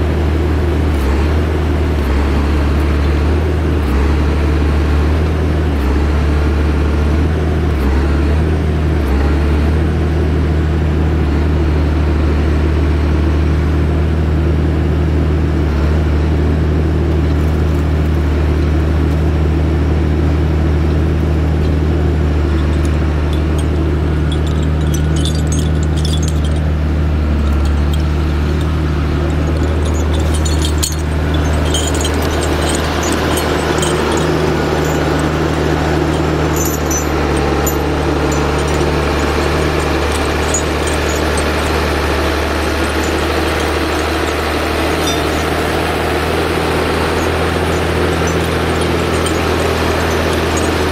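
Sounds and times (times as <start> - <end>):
diesel engine humming: 14.4 - 50.9.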